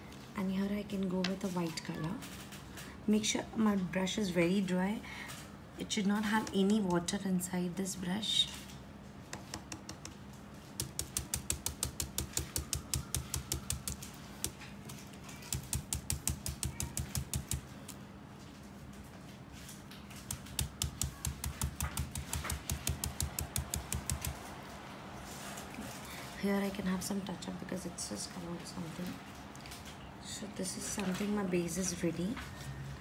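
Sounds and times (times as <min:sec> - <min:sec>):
stencil brush tapping: 0:09.3 - 0:14.6, 0:15.4 - 0:17.7, 0:20.1 - 0:24.5.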